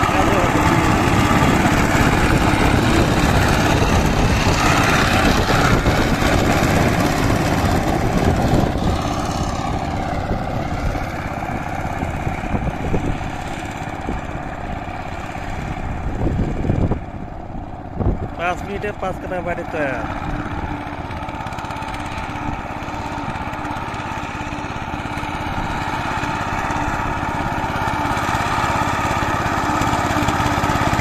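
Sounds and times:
blades churning mud: 0.0s - 31.0s
diesel power tiller running: 0.0s - 31.0s.

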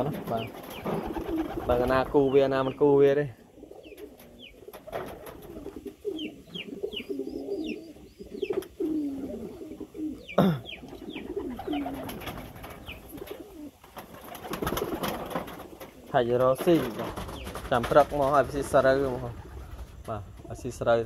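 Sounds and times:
wings flapping: 0.0s - 2.2s, 4.0s - 6.2s, 10.9s - 20.6s
pigeons cooing: 0.0s - 20.8s.

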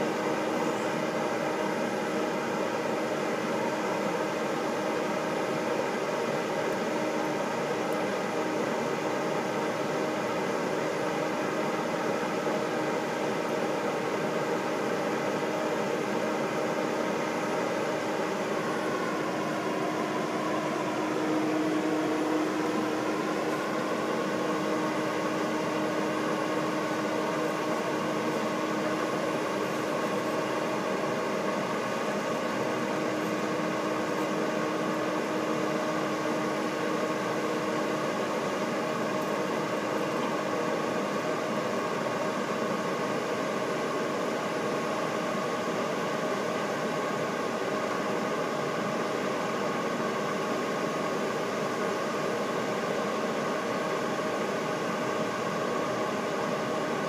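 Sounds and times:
fire engine running: 14.9s - 40.6s.

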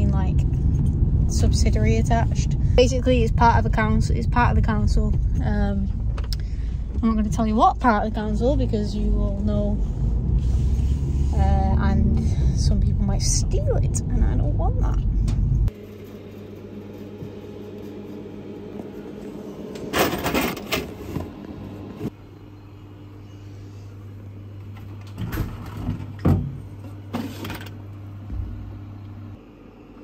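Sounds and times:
vending machine electrical hum: 0.0s - 30.0s
rattling parts and coins: 19.9s - 20.8s.

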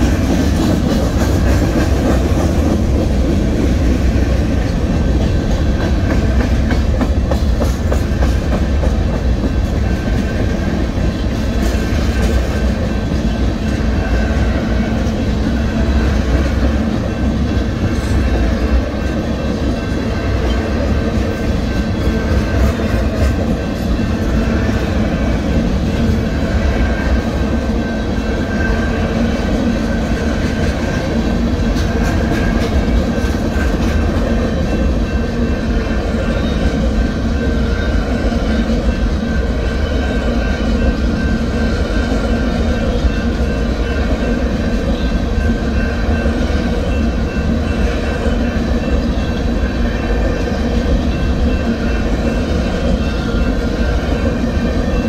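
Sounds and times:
wheels clacking over rail joints: 0.0s - 36.8s
freight train wheels rumbling: 0.0s - 55.0s.

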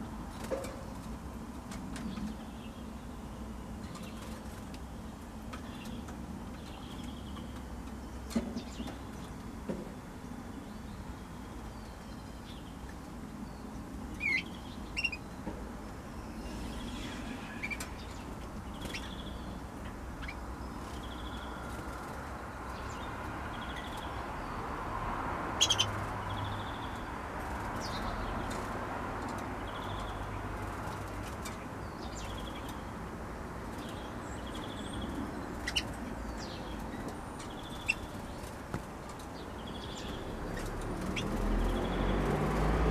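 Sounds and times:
canaries chirping: 5.5s - 9.4s, 13.7s - 15.4s, 16.1s - 24.9s, 25.5s - 42.9s.

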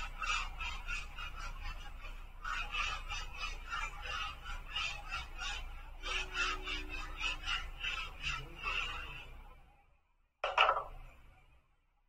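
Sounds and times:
marker squeaking on whiteboard: 0.0s - 9.6s, 10.4s - 11.3s.

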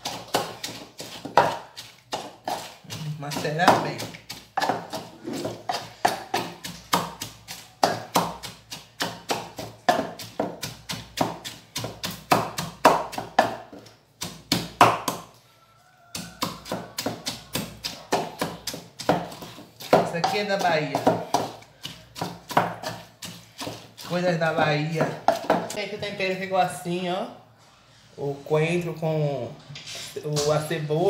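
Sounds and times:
pestle pounding in wooden mortar: 0.0s - 15.4s, 16.1s - 26.1s.

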